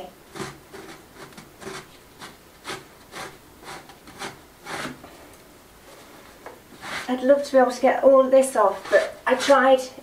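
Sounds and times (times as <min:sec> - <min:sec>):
pad scrubbing wooden beam: 0:00.0 - 0:05.0.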